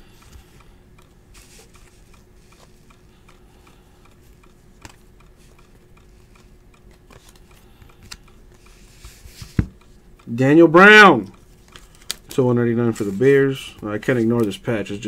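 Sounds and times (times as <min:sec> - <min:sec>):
low steady hum: 0:00.0 - 0:15.0
cards sliding clicks: 0:04.2 - 0:09.8, 0:11.6 - 0:12.3
trading cards flipped through: 0:04.3 - 0:09.8, 0:11.5 - 0:12.3.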